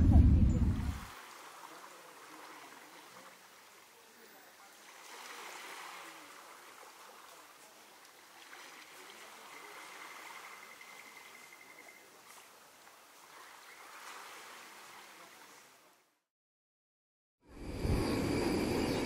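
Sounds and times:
small waves lapping at shore: 0:00.8 - 0:16.0
faint high steady trill: 0:17.5 - 0:19.0.

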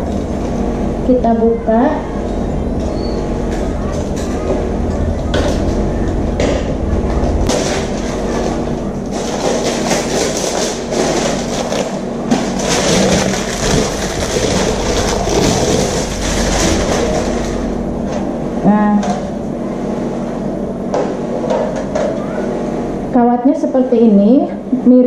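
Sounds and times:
steady low hum: 0:00.0 - 0:25.0
plastic wrapping crinkling: 0:07.5 - 0:17.5.

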